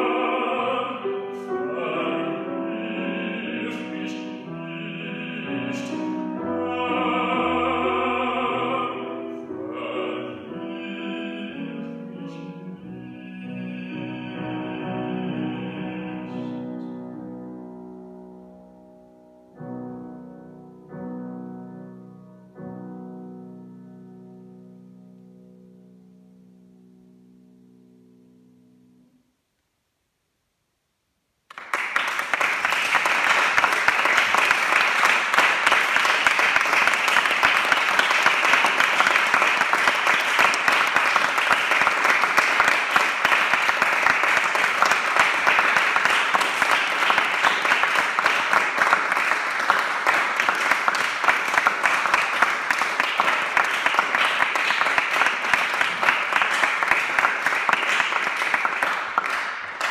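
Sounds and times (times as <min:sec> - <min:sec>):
piano chord: 0:01.0 - 0:29.2
audience applause: 0:31.5 - 0:59.9.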